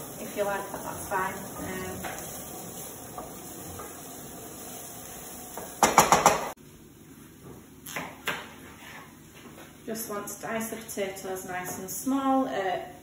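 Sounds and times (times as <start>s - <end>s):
onions frying in a pan: 0.0s - 6.6s
metal spoon knocking on pan: 5.6s - 6.5s.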